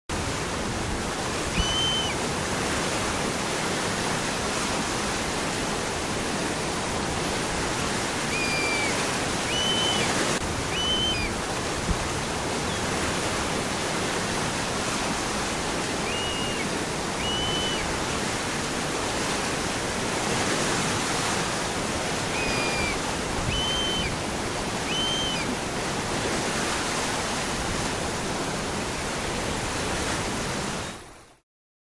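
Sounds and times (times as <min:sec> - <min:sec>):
waterfall rushing: 0:00.1 - 0:30.9
short high chirps: 0:08.1 - 0:10.1.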